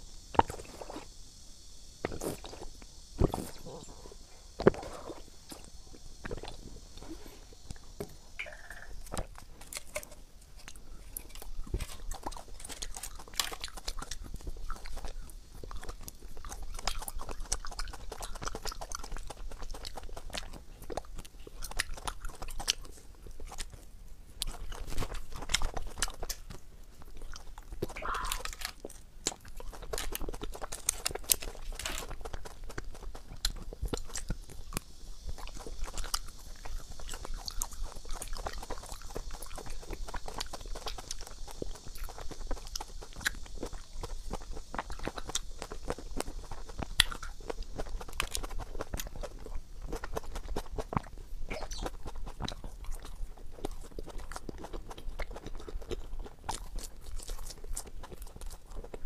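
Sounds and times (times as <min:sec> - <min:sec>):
crunching and chewing candy: 0:00.0 - 0:59.0
sipping: 0:02.0 - 0:09.3, 0:27.8 - 0:28.6
mouth clicks: 0:02.0 - 0:22.8, 0:27.8 - 0:29.9, 0:49.9 - 0:56.6.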